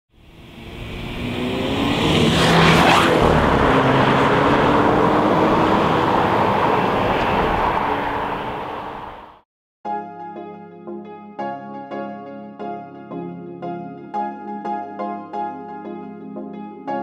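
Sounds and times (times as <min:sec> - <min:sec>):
road and exhaust noise: 0:00.1 - 0:09.4
car engine accelerating: 0:00.2 - 0:09.4
loud whoosh: 0:00.2 - 0:09.4.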